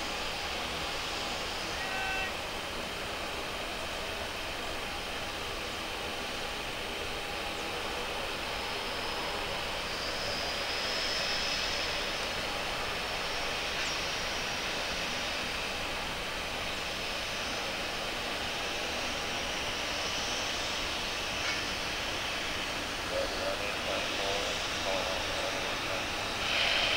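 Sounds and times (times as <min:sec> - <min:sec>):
distant jet airliner: 0:00.0 - 0:26.9
faint turbine whine: 0:00.0 - 0:26.9.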